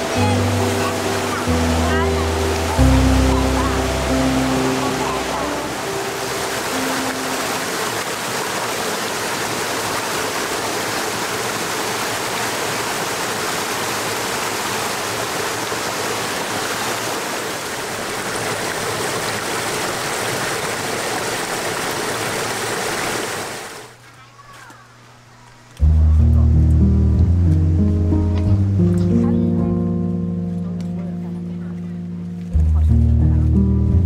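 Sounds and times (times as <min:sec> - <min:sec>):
stream running over rocks: 0:00.0 - 0:24.0.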